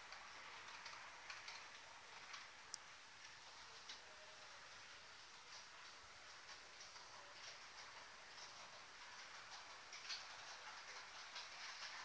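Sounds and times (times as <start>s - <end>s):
low hiss: 0.0s - 12.0s
model train rolling on track: 0.0s - 12.0s.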